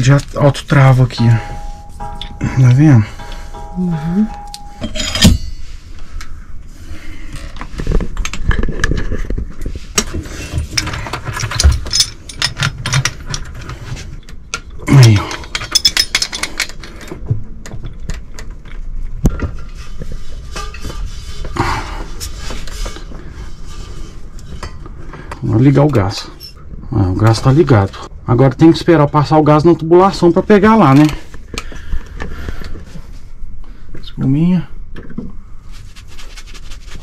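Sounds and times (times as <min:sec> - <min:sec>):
metallic clicks and clinks: 0:10.8 - 0:13.5, 0:14.9 - 0:17.1.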